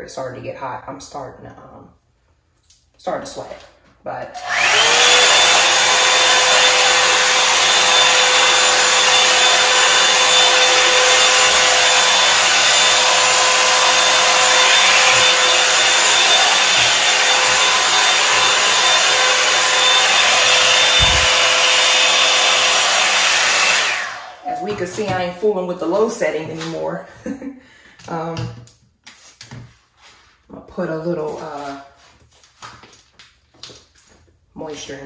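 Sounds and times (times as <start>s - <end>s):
hot-air brush dryer blowing: 4.3s - 26.8s
motor whine: 4.4s - 24.7s.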